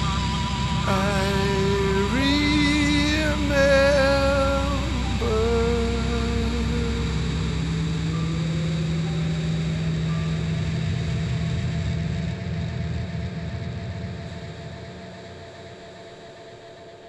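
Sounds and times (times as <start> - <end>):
vehicle engine low drone: 0.0 - 16.9.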